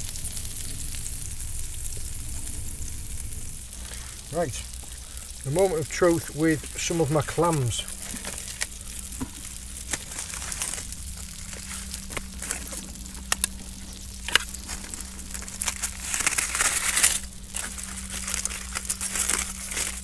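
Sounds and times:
aluminium foil crinkling: 0:00.0 - 0:20.0
knife slitting foil: 0:07.4 - 0:20.0.

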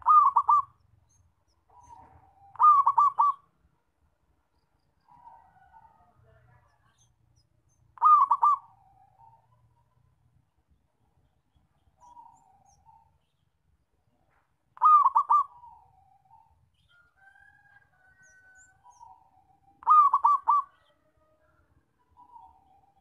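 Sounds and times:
dove cooing song: 0:00.0 - 0:03.5, 0:08.0 - 0:09.9, 0:12.0 - 0:13.2, 0:14.8 - 0:21.4, 0:22.1 - 0:23.0
faint bird calls: 0:00.0 - 0:03.6, 0:05.0 - 0:10.2, 0:11.5 - 0:13.5, 0:14.3 - 0:21.4.

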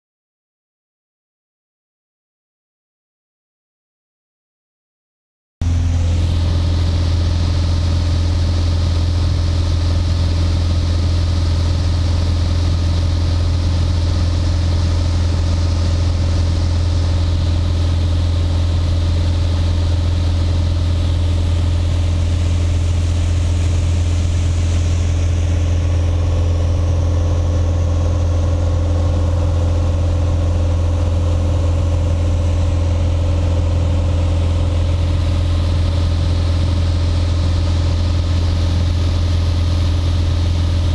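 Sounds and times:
light aircraft engine humming: 0:05.6 - 0:40.9.

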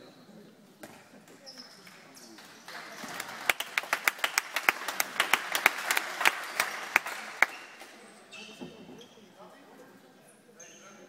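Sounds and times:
sharp close claps: 0:02.4 - 0:08.0
faint applause: 0:02.7 - 0:07.7.

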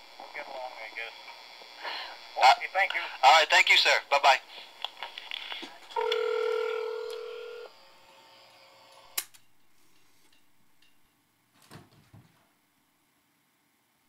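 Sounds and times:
two-pitch telephone tone: 0:06.0 - 0:07.7
sharp click: 0:09.2 - 0:09.5.

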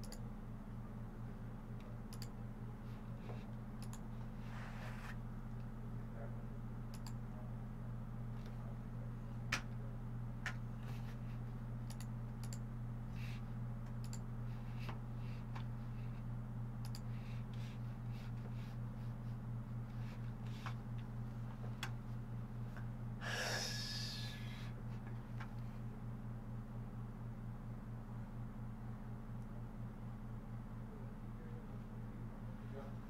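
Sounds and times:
low electrical hum: 0:00.0 - 0:33.0
breathy burst of noise: 0:23.2 - 0:24.6.

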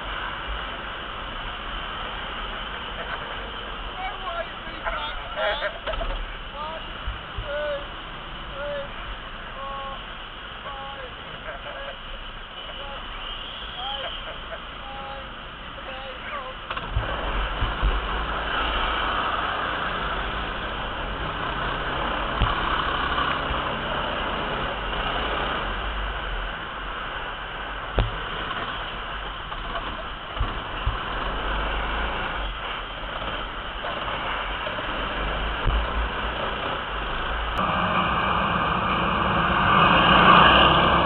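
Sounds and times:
kart engine rumble: 0:10.7 - 0:41.0.

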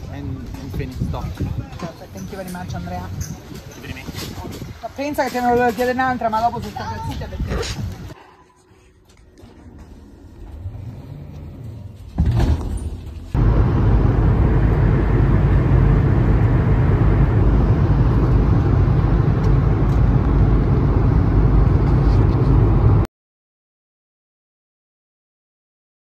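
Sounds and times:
low hum: 0:08.1 - 0:23.1
jet engine and air rumble: 0:09.5 - 0:23.1.

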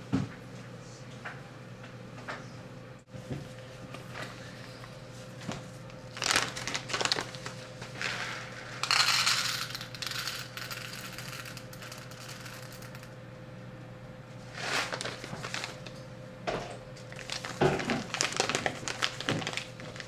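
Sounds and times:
paper bag crinkling: 0:06.1 - 0:08.5, 0:14.5 - 0:16.0, 0:17.1 - 0:20.0
coffee beans rattling into cup: 0:06.2 - 0:13.1, 0:14.5 - 0:16.0, 0:17.2 - 0:20.0.

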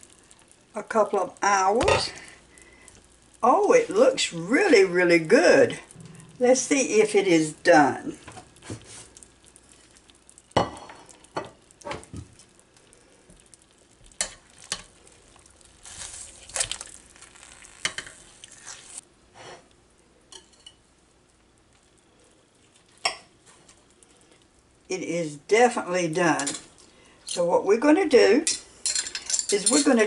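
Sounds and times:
cutlery clinking on a plate: 0:28.5 - 0:29.9.

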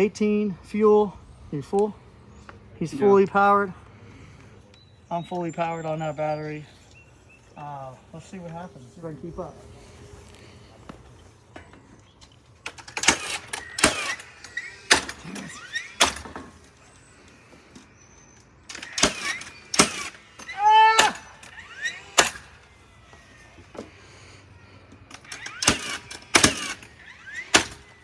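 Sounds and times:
nail gun firing into wood: 0:12.6 - 0:16.5, 0:18.7 - 0:22.6, 0:25.2 - 0:28.0
tool motor whirring: 0:12.7 - 0:28.0.

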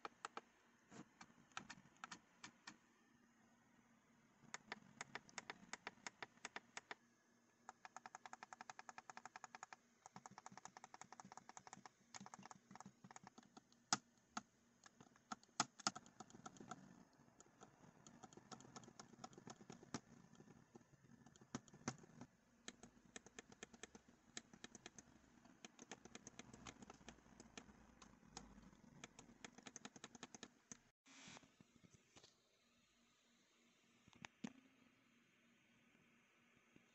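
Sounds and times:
controller buttons clicking: 0:04.6 - 0:07.0.

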